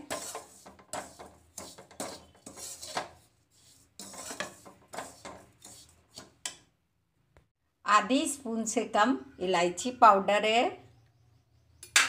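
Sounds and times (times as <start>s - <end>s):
metal spatula scraping metal pan: 0.0s - 6.6s.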